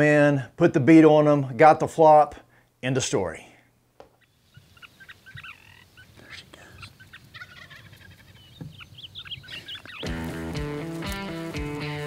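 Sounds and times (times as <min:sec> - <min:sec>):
turkeys gobbling: 0:04.1 - 0:12.0.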